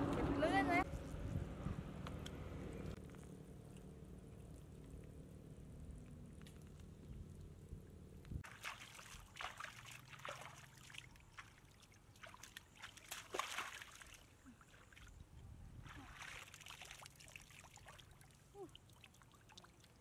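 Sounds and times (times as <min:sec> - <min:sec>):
low steady hum: 0:00.0 - 0:11.5
hands splashing in muddy water: 0:08.4 - 0:15.1, 0:15.8 - 0:18.2.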